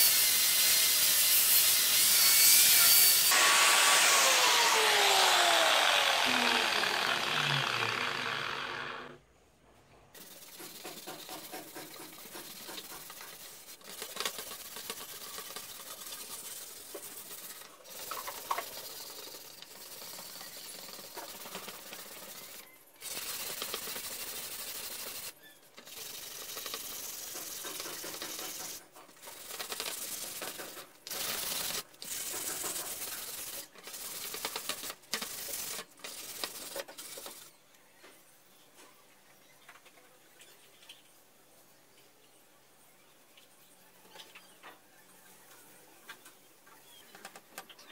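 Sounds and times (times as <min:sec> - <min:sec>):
hand sanding wood: 0:01.4 - 0:09.1, 0:10.2 - 0:37.5.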